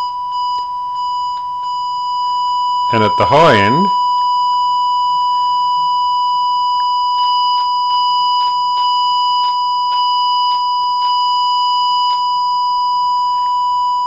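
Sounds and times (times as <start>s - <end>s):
faint hum: 0.0s - 14.0s
buzzy square-wave test tone: 2.9s - 4.0s.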